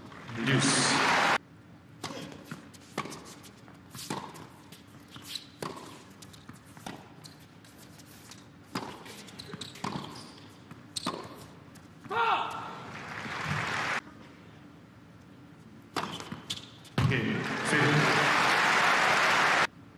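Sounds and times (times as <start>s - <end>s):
tennis ball bouncing: 4.0s - 7.2s, 8.7s - 12.2s.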